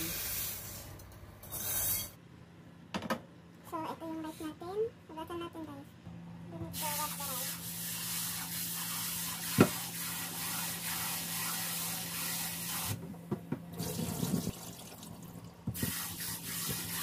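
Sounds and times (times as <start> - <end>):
tap water spraying into a pot: 6.8 - 13.0, 13.8 - 17.0.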